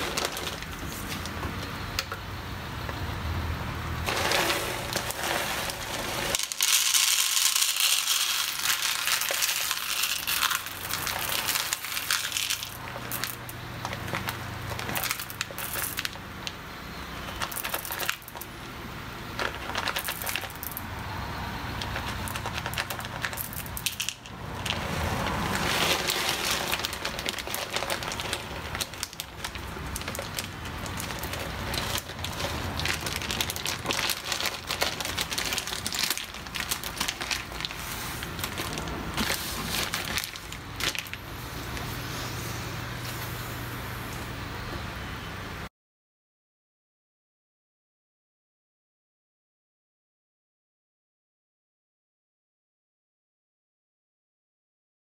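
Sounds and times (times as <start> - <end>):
coffee beans rattling into tray: 0.0 - 1.3, 4.1 - 16.2, 17.3 - 18.5, 19.4 - 20.8, 21.8 - 41.2
plastic bag crinkling: 0.0 - 1.4, 4.0 - 16.2, 17.3 - 18.5, 19.4 - 20.8, 21.8 - 41.9.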